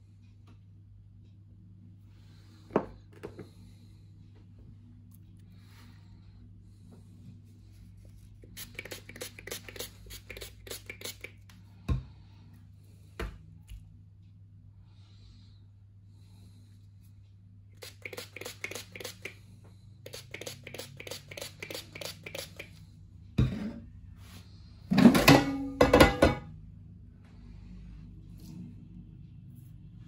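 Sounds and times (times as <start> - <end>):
low steady hum: 0.0 - 30.0
oil spray bottle spraying: 8.4 - 11.4, 17.8 - 19.4, 20.0 - 22.7.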